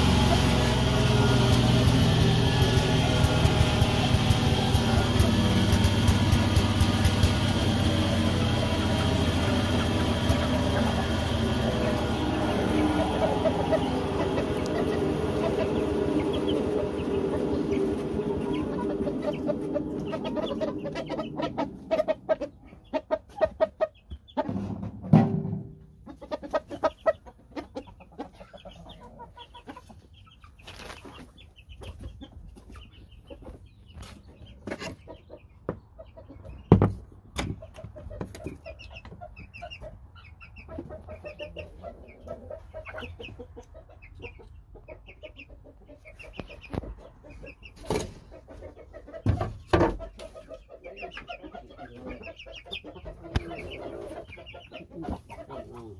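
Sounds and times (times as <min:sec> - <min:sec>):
chickens clucking: 0:00.0 - 0:55.9
sharp knocks and rattles: 0:24.4 - 0:26.2, 0:33.4 - 0:39.9.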